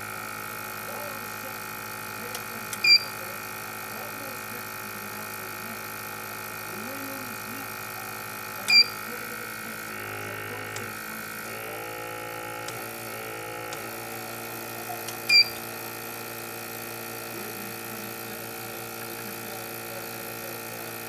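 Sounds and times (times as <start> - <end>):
rework station humming: 0.0 - 21.0.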